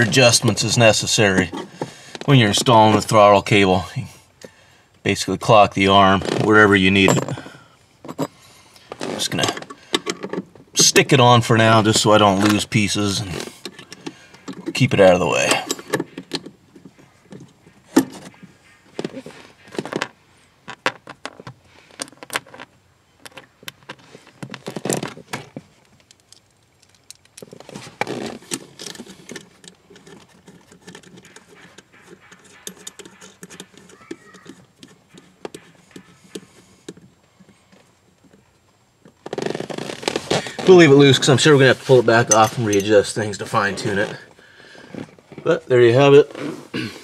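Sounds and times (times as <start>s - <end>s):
metal clicks and knocks: 13.6s - 27.7s, 28.4s - 39.2s.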